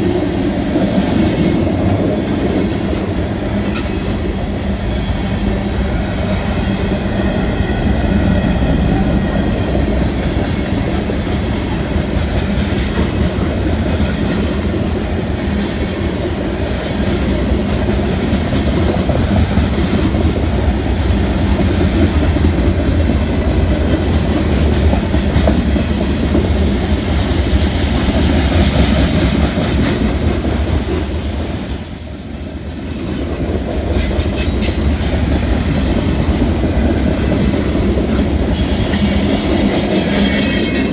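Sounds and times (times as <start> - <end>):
train wheels rumbling on rail: 0.0 - 40.9
high-pitched steady squeal: 27.8 - 36.5.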